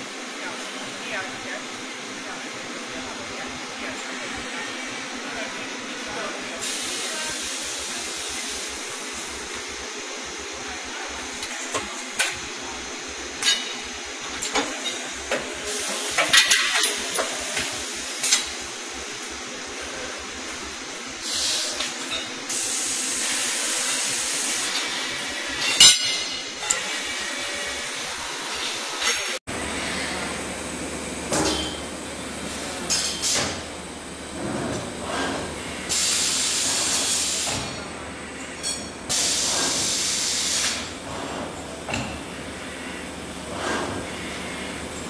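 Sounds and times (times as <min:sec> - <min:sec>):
shop floor noise: 0:00.0 - 0:45.0
machine hiss: 0:06.5 - 0:10.5, 0:15.6 - 0:18.7, 0:21.2 - 0:25.7, 0:34.4 - 0:37.8, 0:39.1 - 0:45.0.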